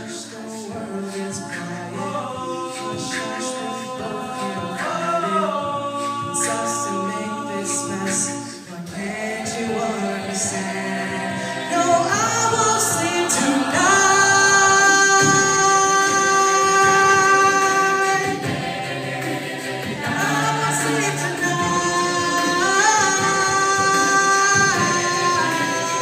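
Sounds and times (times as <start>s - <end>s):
a cappella choir singing: 0.0s - 26.0s.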